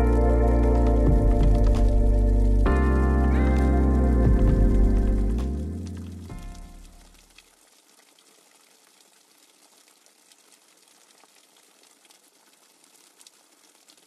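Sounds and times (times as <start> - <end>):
low music note: 0.0 - 7.0
soft rain hiss: 0.0 - 14.0
droplet ticks: 0.8 - 2.8.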